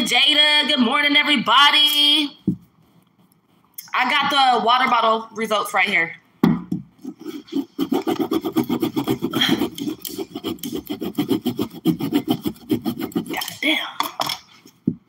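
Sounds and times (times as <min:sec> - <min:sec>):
knife sawing through plastic bottle: 0:07.0 - 0:13.5.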